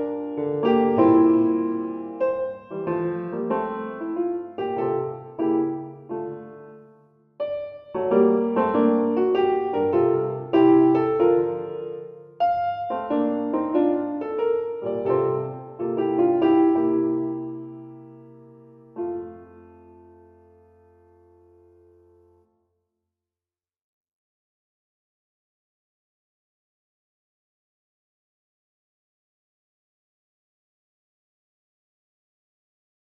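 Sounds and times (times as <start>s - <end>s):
slow piano chords and melody: 0.0s - 22.5s.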